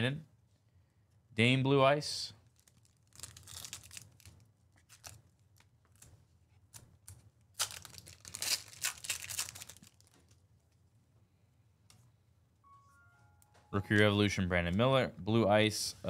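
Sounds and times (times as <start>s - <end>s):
foil wrapper tearing and crinkling: 2.6s - 5.2s, 7.5s - 10.3s.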